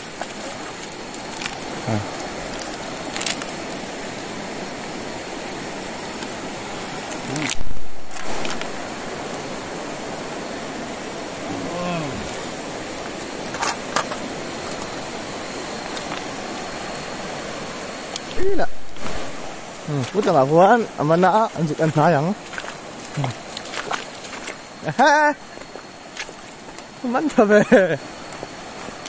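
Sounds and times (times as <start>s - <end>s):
river running over stones: 0.0s - 29.0s
short voice sounds: 11.5s - 12.4s.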